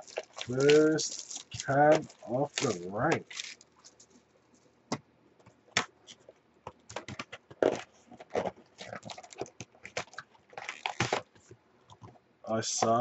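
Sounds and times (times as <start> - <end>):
cardboard tearing: 0.0 - 4.0, 7.6 - 11.2
cardboard box crackling and scraping: 7.6 - 11.2.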